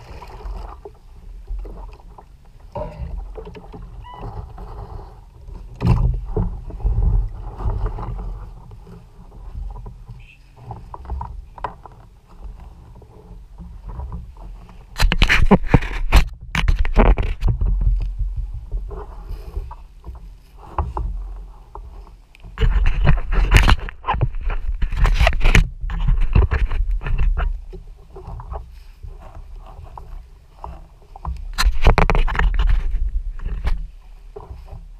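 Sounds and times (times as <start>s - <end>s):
knocks and scrapes on camera: 13.6s - 34.8s.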